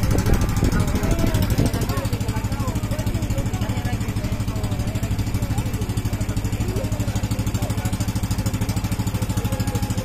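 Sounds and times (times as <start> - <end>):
boat engine chugging: 0.0 - 10.0.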